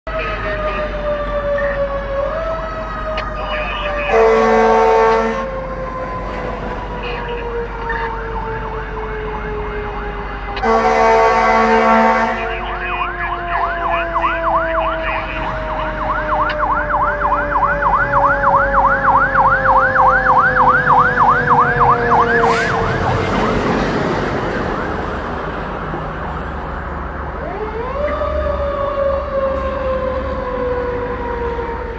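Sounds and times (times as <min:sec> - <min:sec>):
electronic siren yelp: 0:00.1 - 0:25.5
steady siren tone: 0:00.1 - 0:25.8
truck engine and road noise: 0:00.1 - 0:31.9.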